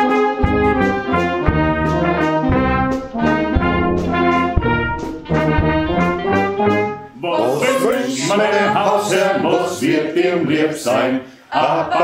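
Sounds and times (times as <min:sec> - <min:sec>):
wind band playing: 0:00.0 - 0:09.5
drum hits: 0:00.4 - 0:07.0
low brass bass line: 0:00.4 - 0:07.8.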